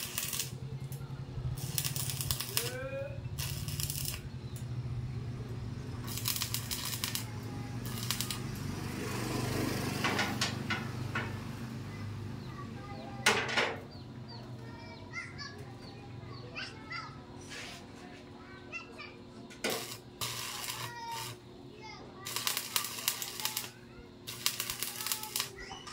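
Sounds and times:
steady low hum: 0:00.0 - 0:09.0
birds chirping: 0:00.5 - 0:06.6, 0:07.2 - 0:25.9
hand tools clattering on metal: 0:10.0 - 0:11.4.

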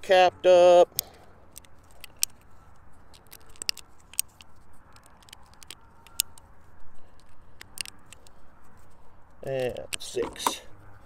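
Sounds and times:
small metallic clicks: 0:00.8 - 0:11.0.

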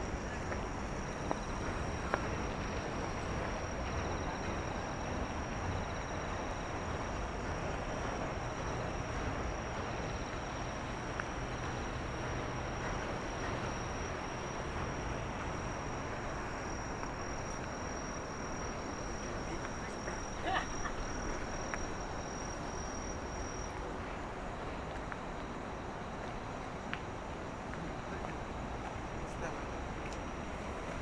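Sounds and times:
insects trilling: 0:00.0 - 0:24.0
distant city traffic hum: 0:00.0 - 0:31.0
faint pulsing insect chirp: 0:00.0 - 0:31.0.

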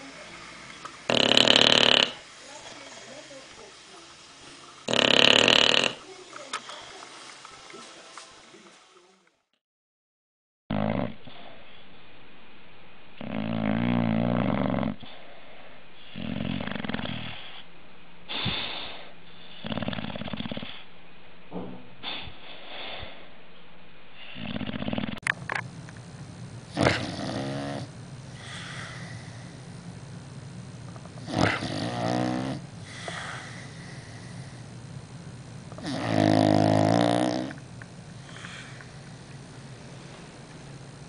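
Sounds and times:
dog snoring: 0:01.1 - 0:03.2, 0:04.8 - 0:06.1, 0:10.7 - 0:11.5, 0:13.2 - 0:15.2, 0:16.0 - 0:17.6, 0:18.3 - 0:20.8, 0:24.2 - 0:25.2, 0:26.7 - 0:29.7, 0:31.2 - 0:34.6, 0:35.7 - 0:37.6
dog snorting: 0:01.1 - 0:03.2, 0:04.8 - 0:06.1, 0:13.2 - 0:15.2, 0:16.0 - 0:17.6, 0:18.3 - 0:20.8, 0:26.7 - 0:29.5, 0:31.2 - 0:34.6, 0:35.8 - 0:37.6.

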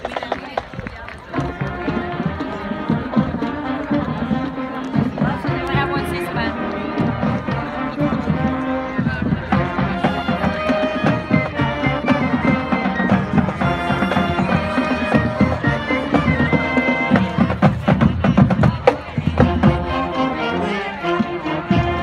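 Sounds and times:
steady drum beat: 0:00.0 - 0:22.0
wind instruments: 0:00.0 - 0:22.0.

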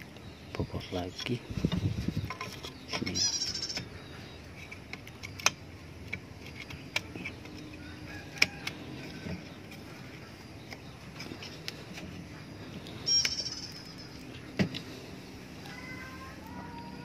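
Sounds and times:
sharp clicks and knocks: 0:04.6 - 0:09.8.

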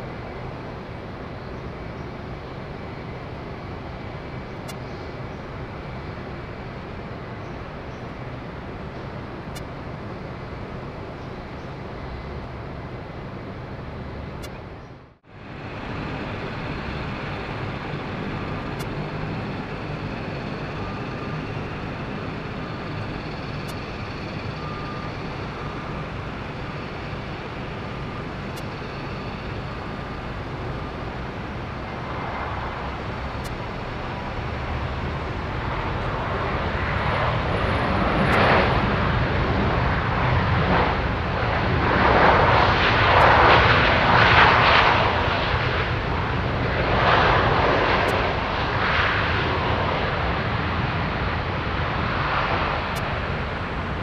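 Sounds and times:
airliner jet engines rumbling: 0:00.0 - 0:54.0.

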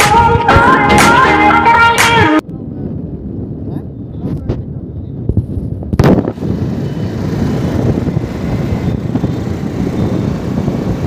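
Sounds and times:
motorcycle engine rumbling: 0:02.5 - 0:11.0.

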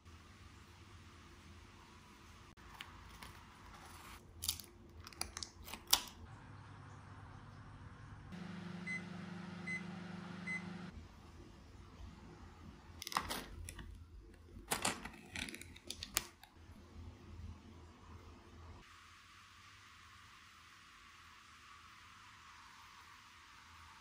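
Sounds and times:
microwave oven humming: 0:06.3 - 0:11.3
microwave beeps: 0:08.4 - 0:10.9.

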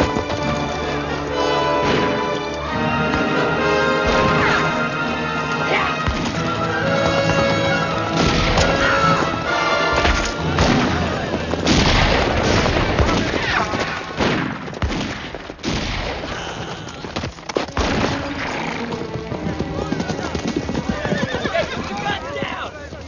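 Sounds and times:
orchestral film music: 0:00.0 - 0:14.1, 0:17.5 - 0:21.4
galloping horses: 0:00.0 - 0:23.0
gunshots: 0:08.1 - 0:09.2, 0:09.9 - 0:16.9, 0:17.7 - 0:18.8
booms: 0:10.0 - 0:16.7.

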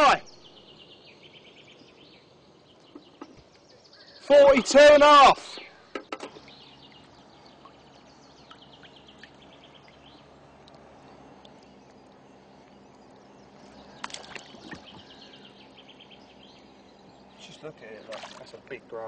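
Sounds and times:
faint steady hum: 0:00.0 - 0:19.0
small birds chirping: 0:00.0 - 0:19.0
water splashing: 0:14.0 - 0:15.0, 0:18.0 - 0:18.7.

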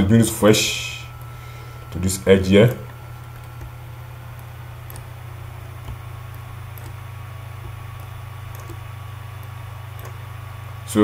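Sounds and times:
low electrical hum: 0:00.0 - 0:11.0
computer mouse clicks: 0:02.8 - 0:05.2, 0:05.8 - 0:07.0, 0:07.6 - 0:10.2.

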